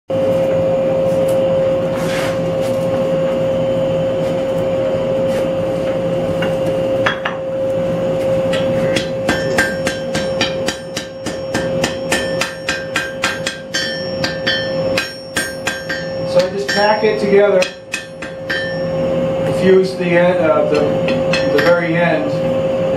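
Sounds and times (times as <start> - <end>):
steady hum: 0.1 - 22.9
hammer ringing on anvil: 8.5 - 20.0, 20.7 - 22.0.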